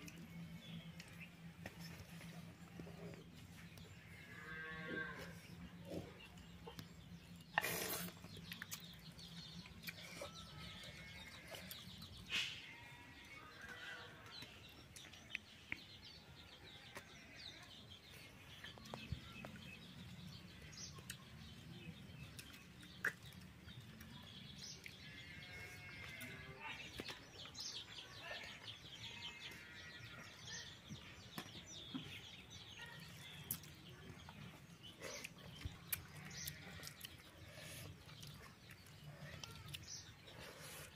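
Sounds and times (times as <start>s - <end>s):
birds calling: 16.8s - 40.9s.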